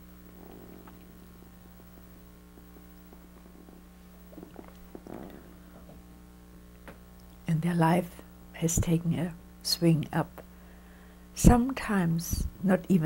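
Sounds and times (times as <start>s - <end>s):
low electrical hum: 0.0s - 13.0s
woman sipping and swallowing: 0.5s - 1.2s, 3.3s - 6.0s.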